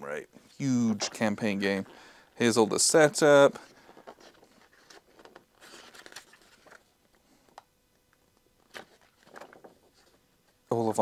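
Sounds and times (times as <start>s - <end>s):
paper pages turning: 2.5s - 7.2s, 8.5s - 10.2s.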